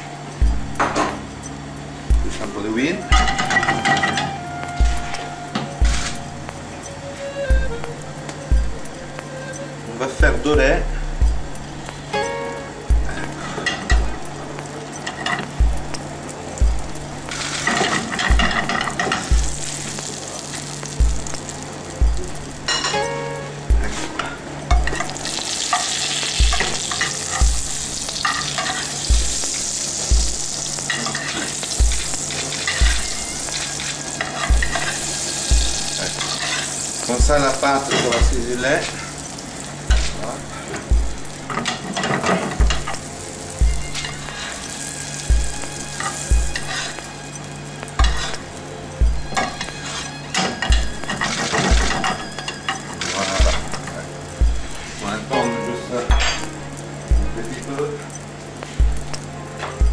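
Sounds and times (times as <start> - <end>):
butter and oil sizzling in pan: 0.0 - 59.9
low thuds: 10.2 - 11.8.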